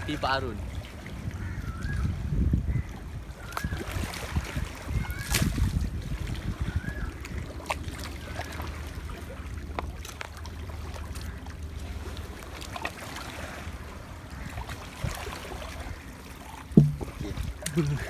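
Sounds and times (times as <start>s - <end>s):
water lapping on rocky shore: 0.0s - 18.0s
wind rumbling on microphone: 0.6s - 7.7s, 16.7s - 18.0s.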